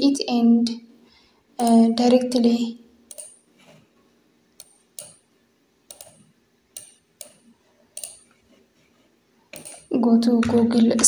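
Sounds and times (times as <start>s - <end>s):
computer mouse and keyboard clicks: 1.6s - 1.9s, 3.1s - 3.8s, 4.6s - 5.2s, 5.9s - 8.4s, 9.5s - 11.0s.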